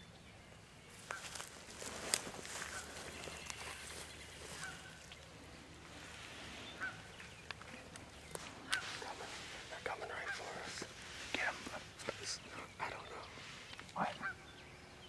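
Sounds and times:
light ticks of brush: 1.0s - 14.2s
turkey clucks: 2.5s - 5.1s, 10.1s - 10.8s.

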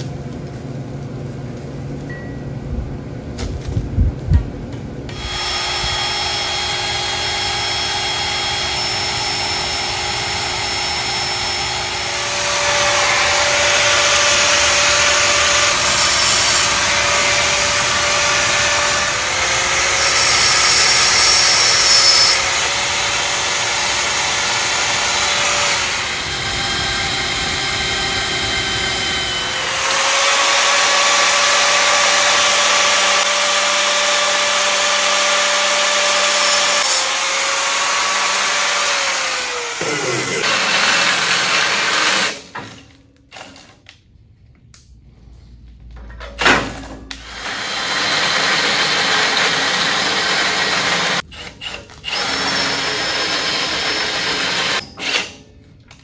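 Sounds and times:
angle grinder motor whining: 5.1s - 42.5s.

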